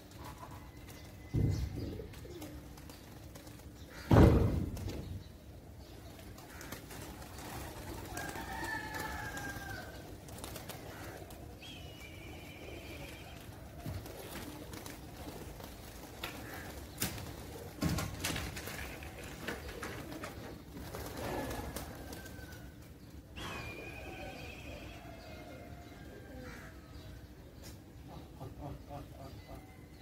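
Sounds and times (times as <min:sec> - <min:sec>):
pigeons cooing: 0:00.0 - 0:30.0
wavering bird call: 0:11.2 - 0:13.6, 0:23.4 - 0:25.6.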